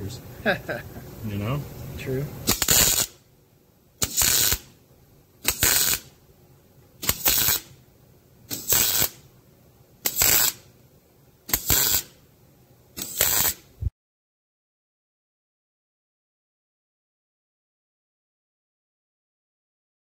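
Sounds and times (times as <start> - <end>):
welding arc bursts: 2.4 - 3.2, 4.0 - 4.8, 5.4 - 6.2, 7.0 - 7.8, 8.5 - 9.2, 10.0 - 10.7, 11.5 - 12.2, 13.0 - 13.7.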